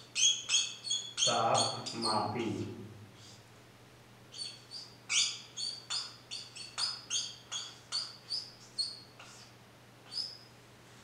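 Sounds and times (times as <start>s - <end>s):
marker squeaking on whiteboard: 0.0s - 2.5s, 4.4s - 9.5s, 10.1s - 10.5s.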